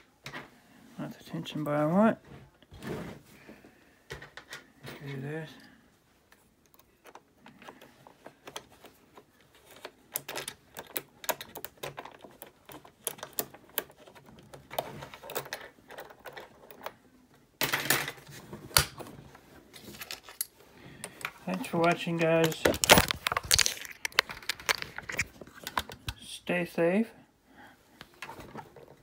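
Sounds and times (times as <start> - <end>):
lock pick clicking and scraping: 6.6 - 17.0
lock rattle and click: 9.8 - 17.0.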